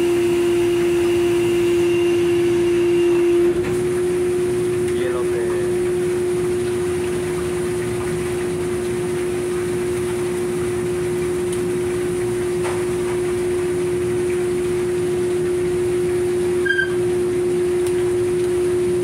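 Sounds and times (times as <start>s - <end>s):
boat machinery droning hum: 0.0s - 19.0s
short high beep: 16.6s - 17.0s.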